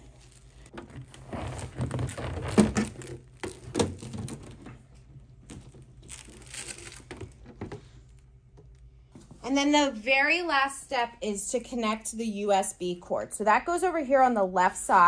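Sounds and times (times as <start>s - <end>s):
corrugated hose crinkling: 0.0s - 9.4s.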